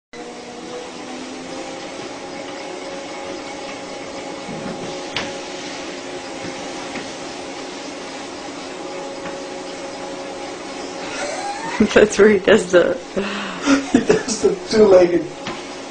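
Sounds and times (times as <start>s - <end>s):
mechanical hum with whine: 0.2s - 15.9s.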